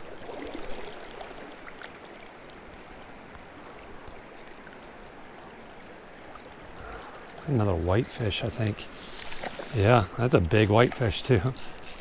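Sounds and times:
faint ticks: 8.6s - 9.8s, 10.9s - 12.0s.

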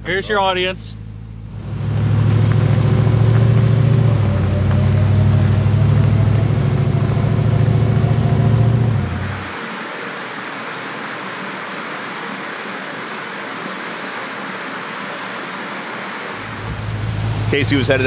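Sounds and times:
car engine running: 0.0s - 9.6s, 16.2s - 18.0s
waterfall rushing: 1.6s - 18.0s.

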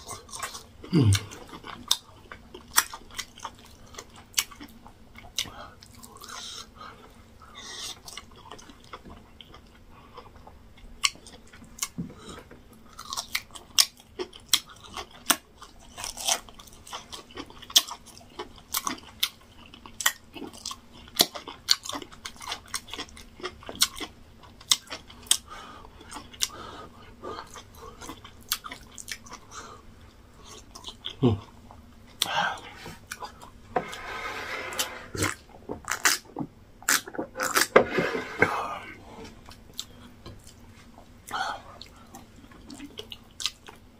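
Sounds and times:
man chewing food: 0.0s - 43.9s.

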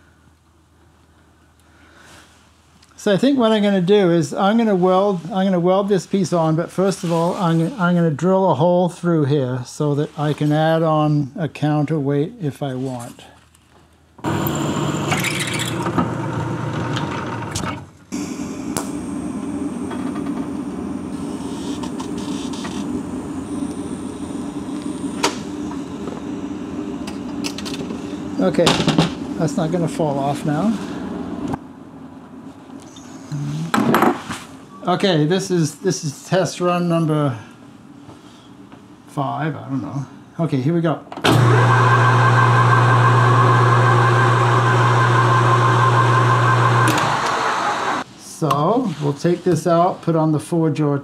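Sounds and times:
welding arc humming and hissing: 18.2s - 28.5s.

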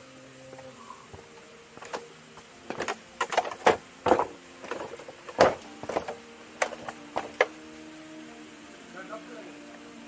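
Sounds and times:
footsteps on dry leaves and twigs: 1.1s - 7.5s.

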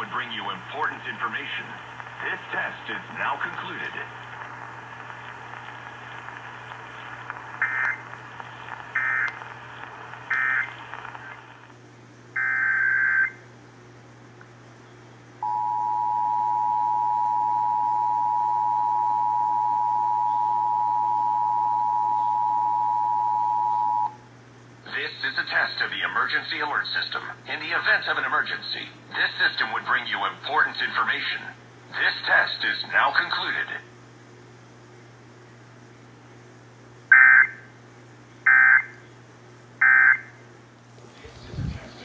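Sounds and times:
faint radio hiss: 0.0s - 11.9s, 24.7s - 36.6s, 40.8s - 42.0s
digital header bursts: 8.9s - 9.3s, 10.3s - 10.8s
two-tone attention signal: 15.4s - 24.2s.

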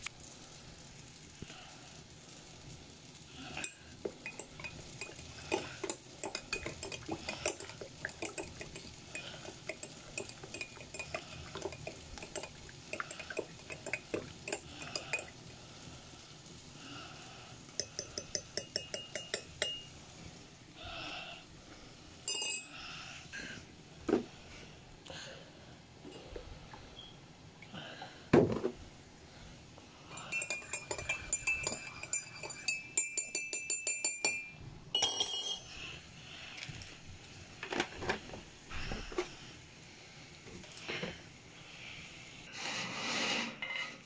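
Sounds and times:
teaspoon clinking in ceramic mug: 3.6s - 15.3s, 17.8s - 19.9s, 22.3s - 22.7s, 30.1s - 35.7s.

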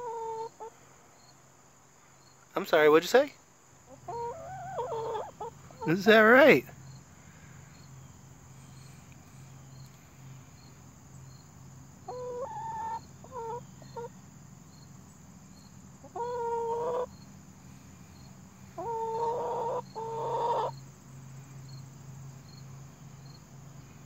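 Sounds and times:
hen calling: 3.9s - 6.6s, 12.1s - 14.2s, 16.0s - 17.1s, 18.7s - 20.7s.

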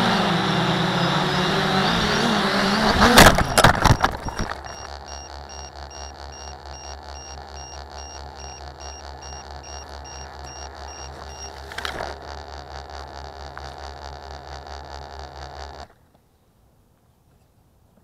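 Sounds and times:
electric motors whirring: 0.0s - 16.0s
repeated high beep: 0.9s - 11.6s.

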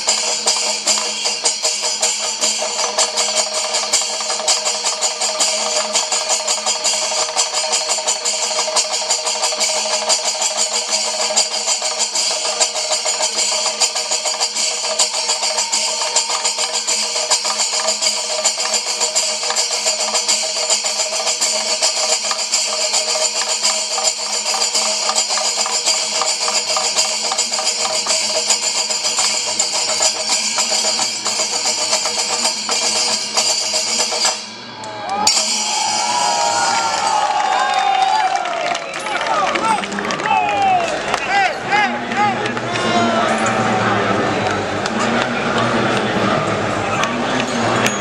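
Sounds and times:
massed drums beaten fast: 0.0s - 34.5s
jangling brass hand cymbals: 0.0s - 37.5s.

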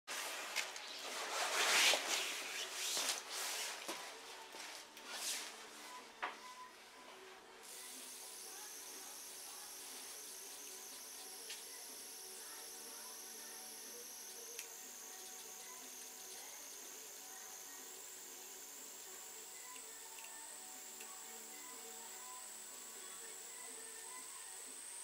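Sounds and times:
rustling and rubbing: 0.1s - 5.8s
high-pitched electrical whine with hiss: 7.7s - 25.0s.

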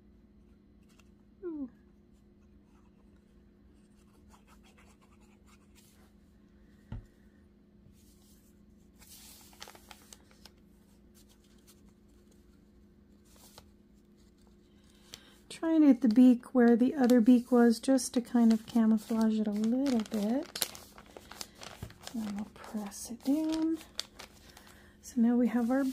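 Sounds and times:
paper rubbing and rustling: 8.0s - 14.7s, 16.0s - 24.8s, 25.4s - 25.9s.

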